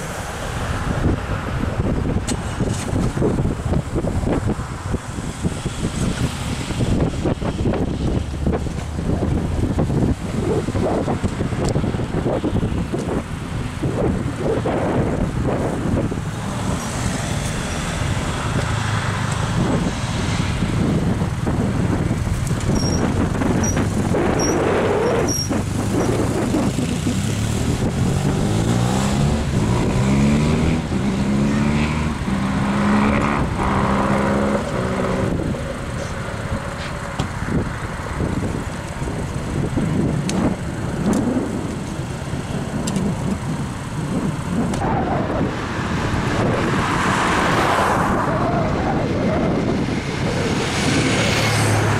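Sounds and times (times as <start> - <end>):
wind and road noise: 0.0 - 51.9
car engine accelerating: 13.8 - 51.9.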